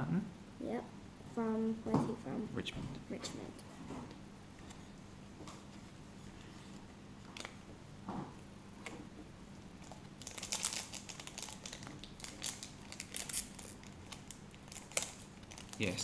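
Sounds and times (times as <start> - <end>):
foil wrapper crinkling: 9.8 - 16.0.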